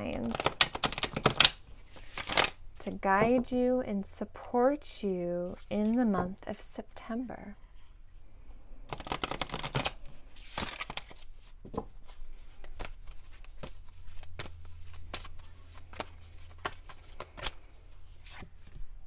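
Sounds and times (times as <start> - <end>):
cards shuffled by hand: 0.0 - 2.6, 8.9 - 18.8.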